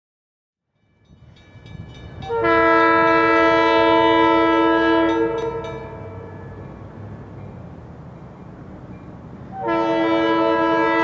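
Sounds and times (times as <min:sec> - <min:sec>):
locomotive air horn chord: 0:02.2 - 0:06.6, 0:09.5 - 0:11.0.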